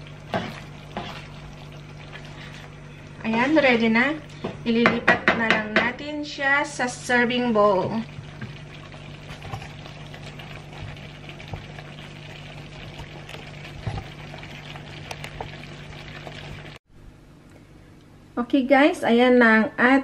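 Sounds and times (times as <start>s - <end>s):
sauce bubbling in a pan: 0.0s - 3.2s, 7.0s - 16.8s
constant low hum: 0.0s - 20.0s.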